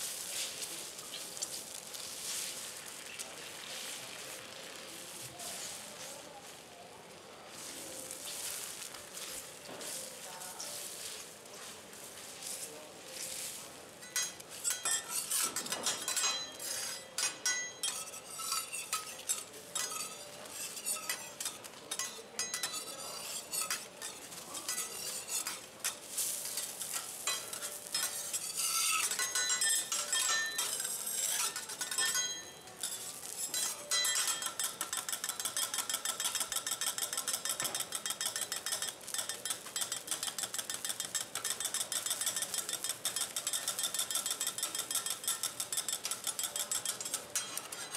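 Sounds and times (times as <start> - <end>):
metal spatulas scraping on griddle: 7.6 - 47.9
spatula chopping on griddle: 14.1 - 47.9.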